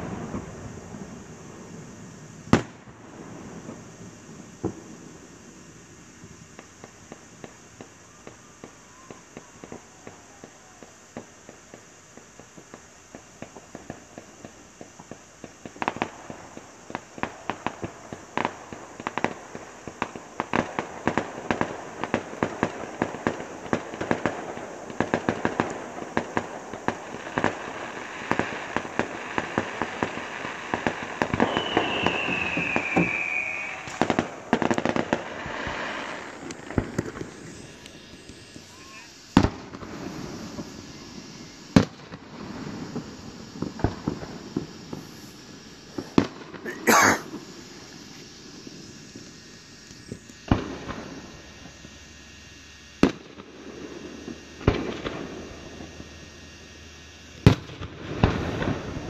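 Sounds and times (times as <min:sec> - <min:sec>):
fireworks crackling and banging: 0:00.0 - 0:59.0
firework falling whistle: 0:06.2 - 0:14.5, 0:25.0 - 0:52.2.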